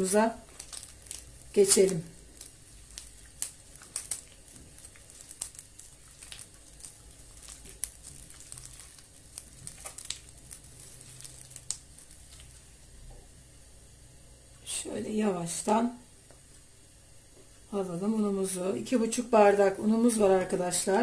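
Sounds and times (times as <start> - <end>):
hand squishing butter mixture: 0.0 - 13.0.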